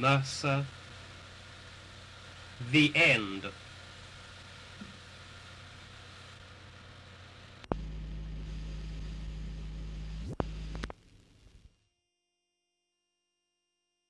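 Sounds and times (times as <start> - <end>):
film soundtrack hiss: 0.0 - 11.8
loud low hum: 6.0 - 11.7.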